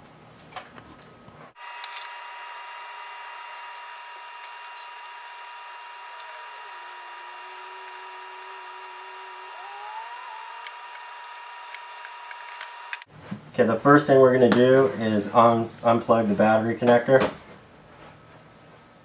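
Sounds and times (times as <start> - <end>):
electrical hum: 0.0 - 18.0
rising electrical whine: 1.6 - 13.1
screwdriver clicking on screws: 3.3 - 13.1.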